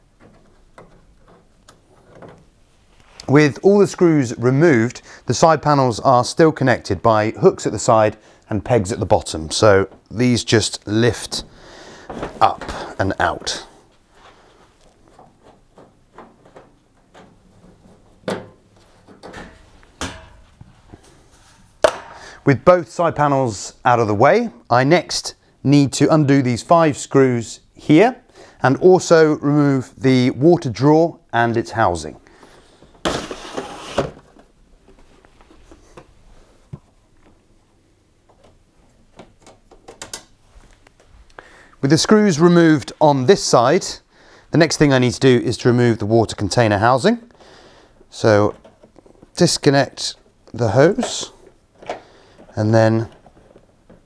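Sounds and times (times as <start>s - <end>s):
sheet metal knocks and scrapes: 15.2s - 20.5s.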